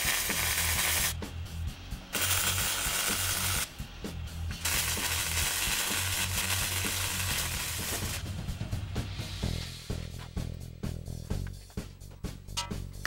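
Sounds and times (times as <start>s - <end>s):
welder arc crackling on steel: 0.0s - 1.2s, 2.1s - 3.7s, 4.5s - 8.2s
background music with steady beat: 0.0s - 13.0s.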